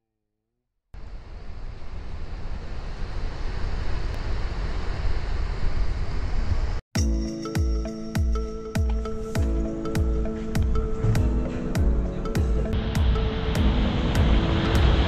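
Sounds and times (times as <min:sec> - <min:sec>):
music: 0:07.0 - 0:15.0
ocean surf washing on beach: 0:11.6 - 0:15.0.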